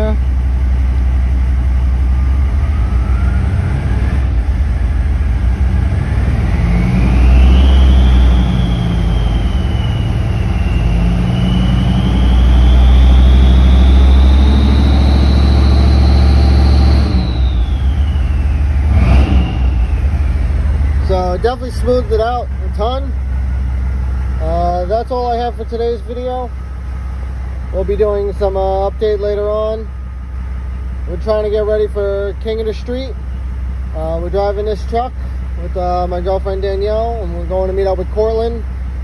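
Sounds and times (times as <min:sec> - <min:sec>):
diesel engine rumbling: 0:00.0 - 0:39.0
thin whine rising with revs: 0:00.9 - 0:26.6.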